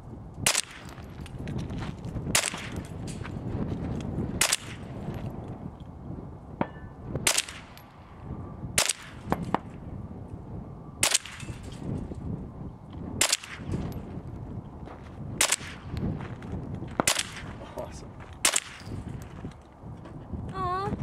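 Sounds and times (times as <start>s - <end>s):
gunshots: 2.3s - 2.8s, 4.4s - 4.9s, 7.2s - 7.8s, 8.8s - 9.6s, 11.0s - 11.8s, 13.2s - 13.8s, 15.4s - 15.9s, 17.0s - 17.6s, 18.4s - 18.9s.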